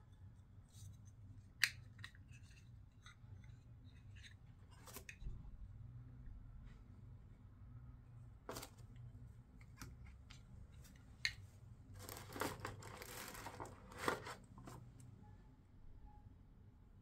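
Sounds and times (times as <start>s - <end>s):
rustling paper and plastic packaging: 12.0s - 14.9s.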